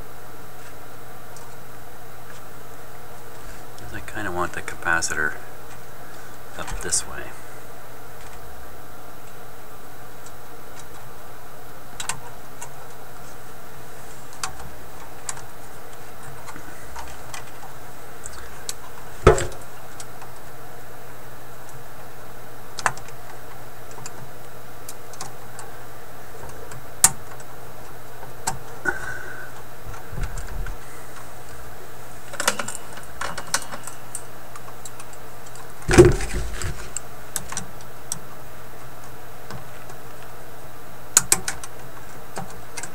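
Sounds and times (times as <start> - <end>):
steady background hum: 0.0 - 42.9
louder knocks: 19.3 - 19.6, 35.9 - 36.7.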